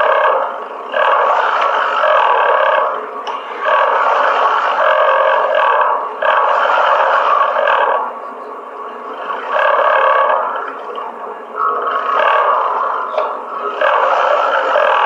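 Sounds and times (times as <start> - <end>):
water rushing in a borewell: 9.1 - 15.0.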